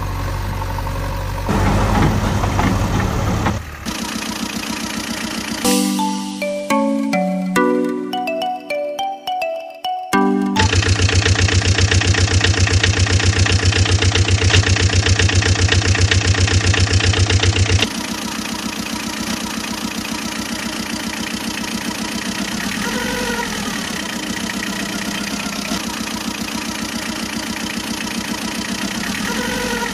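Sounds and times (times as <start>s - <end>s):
truck engine chugging: 0.0s - 7.3s, 10.6s - 29.9s.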